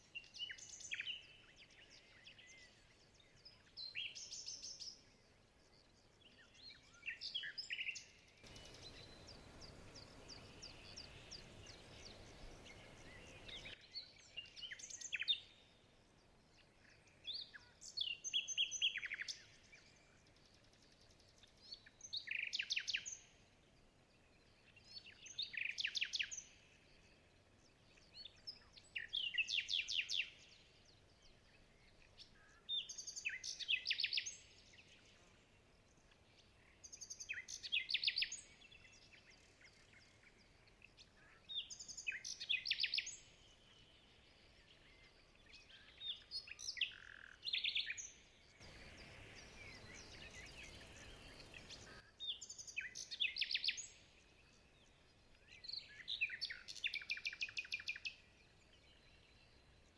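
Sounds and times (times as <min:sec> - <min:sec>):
faint steady hiss: 0:00.0 - 0:59.9
songbird trilling: 0:55.9 - 0:58.2.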